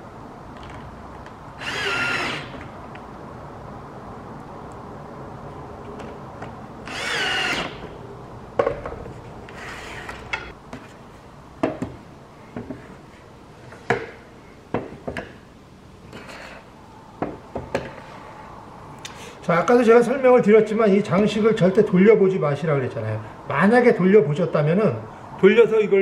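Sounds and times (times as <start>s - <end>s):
cordless drill whining: 1.6s - 2.6s, 6.8s - 7.8s.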